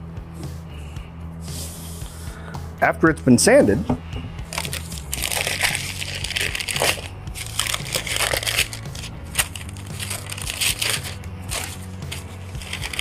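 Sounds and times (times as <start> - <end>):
paper crumpling and rustling: 4.5 - 13.0.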